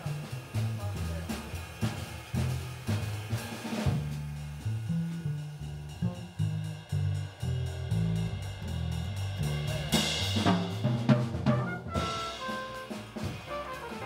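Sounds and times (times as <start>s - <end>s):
drum kit: 0.0s - 14.0s
jazz band playing live: 0.0s - 14.0s
cymbal crash: 6.5s - 14.0s
trumpet and saxophone notes: 11.1s - 14.0s.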